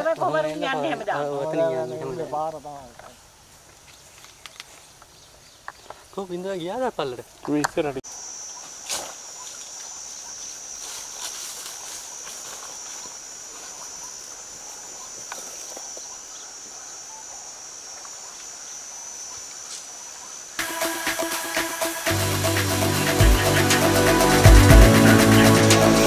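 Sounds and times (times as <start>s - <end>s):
low outdoor hiss: 0.0s - 26.0s
faint clicks: 4.2s - 6.0s
high-pitched insect buzz: 8.1s - 16.5s.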